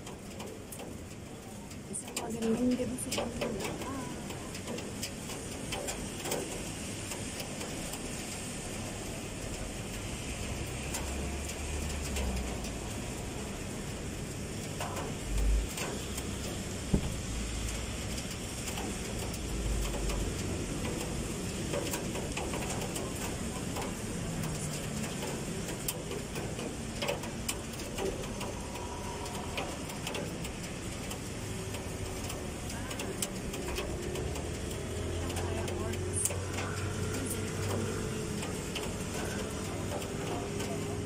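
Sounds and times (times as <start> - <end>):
rain hiss: 0.0 - 41.0
traffic on wet road: 0.0 - 41.0
low thumps: 16.9 - 17.3.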